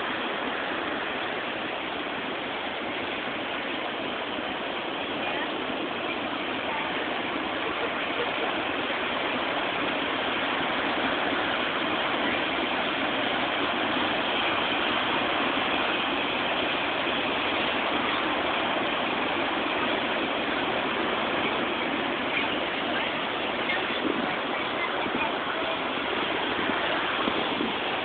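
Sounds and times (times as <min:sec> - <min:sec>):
ocean surf washing ashore: 0:00.0 - 0:28.0.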